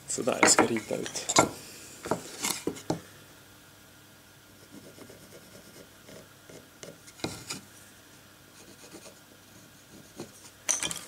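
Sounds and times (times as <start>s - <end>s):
pencil scratching on wood: 4.6s - 7.6s, 8.6s - 10.5s.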